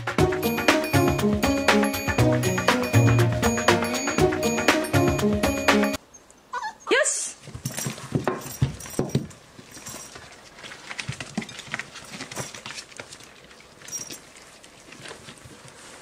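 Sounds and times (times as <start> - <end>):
puppies whining: 6.1 - 6.9.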